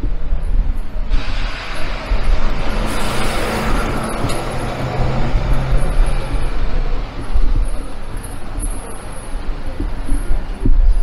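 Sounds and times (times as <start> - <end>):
city road traffic: 0.0 - 11.0
bus running past: 1.0 - 9.8.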